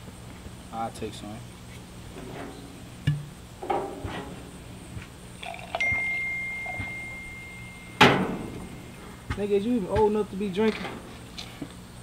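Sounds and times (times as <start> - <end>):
cork popping: 5.4 - 6.2
glass ringing: 5.4 - 9.0.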